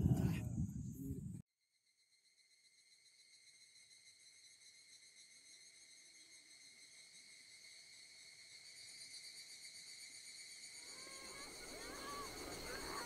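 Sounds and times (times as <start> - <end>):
insects calling in grass: 2.7 - 13.0.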